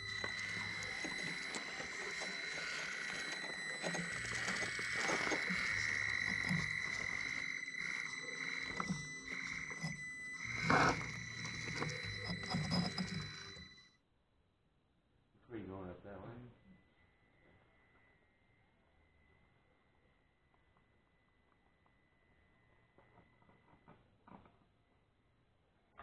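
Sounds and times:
small electric motor whining: 0.0 - 13.9.

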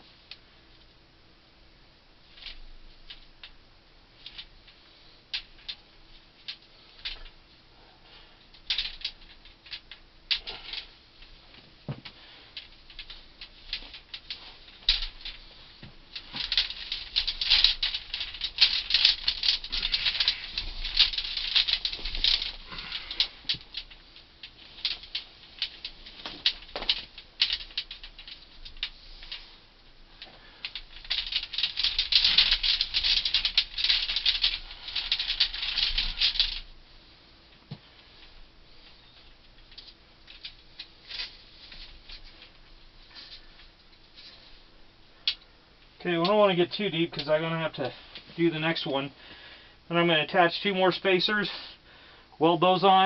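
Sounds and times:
tubing rattling and scraping: 8.5 - 29.6, 30.2 - 36.7.

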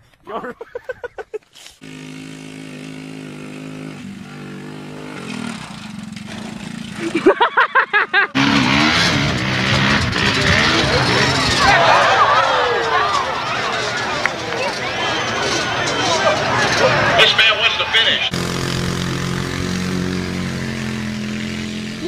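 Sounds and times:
atv engine running: 1.8 - 22.0
crowd noise: 8.2 - 18.5.

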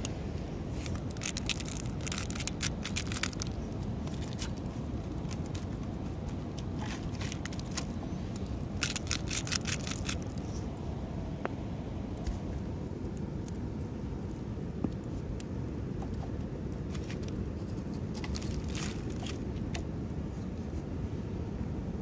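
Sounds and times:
wood campfire crackling: 0.0 - 20.2
parchment paper crinkling: 0.7 - 10.6, 17.0 - 19.5.

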